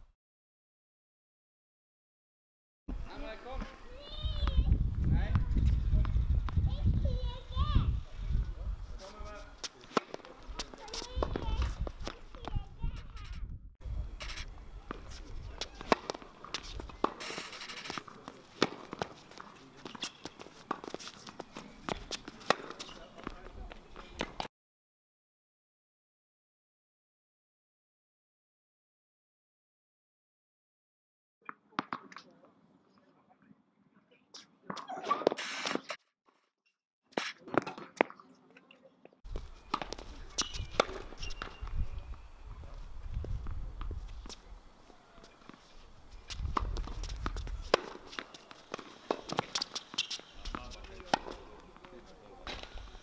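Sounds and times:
wind rumble on microphone: 4.2s - 9.0s, 11.2s - 15.6s, 41.6s - 44.7s, 46.0s - 47.7s
racket hitting tennis ball: 9.6s - 12.5s, 14.9s - 23.0s, 39.4s - 41.7s, 46.2s - 51.6s
footsteps: 14.2s - 24.5s
tennis ball bouncing: 14.9s - 17.2s, 18.0s - 23.3s, 31.5s - 32.2s, 39.4s - 41.6s, 46.2s - 51.4s.

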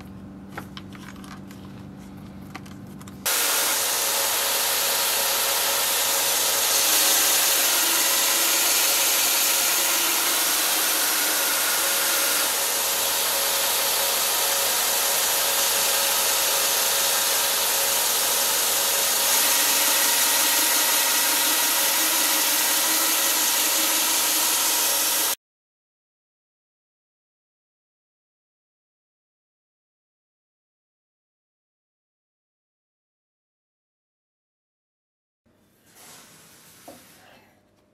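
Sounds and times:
belt grinder hum: 3.3s - 25.4s
blade grinding on belt: 3.3s - 25.4s.

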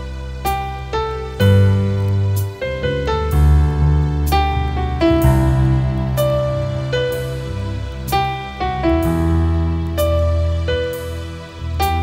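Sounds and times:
band playing slow instrumental: 0.0s - 12.0s.

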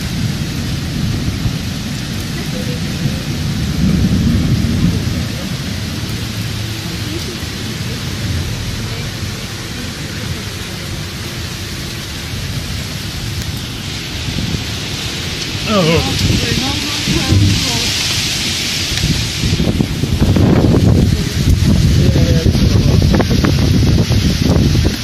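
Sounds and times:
deep rumble: 0.0s - 25.0s
heavy rain pouring on street: 0.0s - 25.0s.

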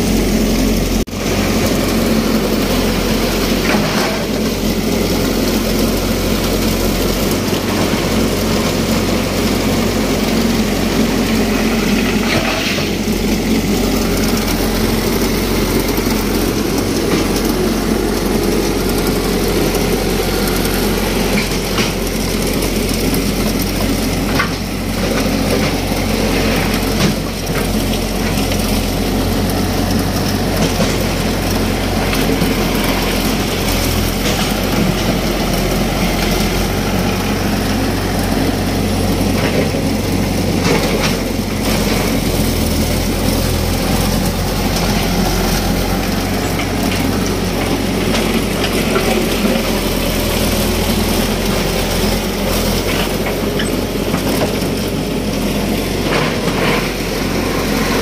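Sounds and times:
backhoe engine running: 0.0s - 58.0s.

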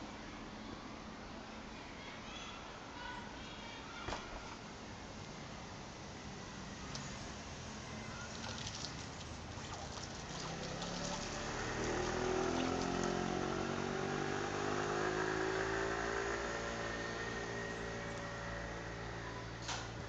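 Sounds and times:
vehicle engine passing by: 9.7s - 19.4s.

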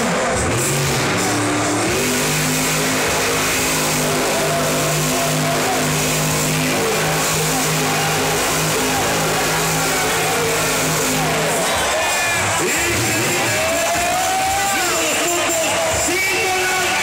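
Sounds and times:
arena crowd noise: 0.0s - 17.0s
monster truck engine: 0.0s - 17.0s.

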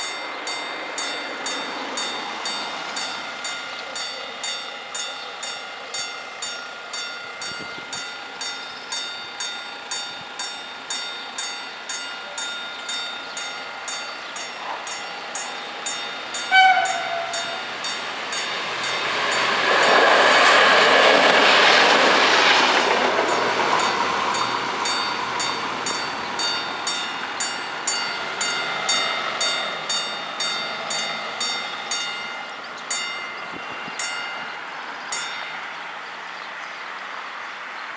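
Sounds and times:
level crossing bell ringing: 0.0s - 19.5s, 23.9s - 35.7s
train passing: 0.0s - 37.9s
train horn blast: 16.4s - 17.8s.

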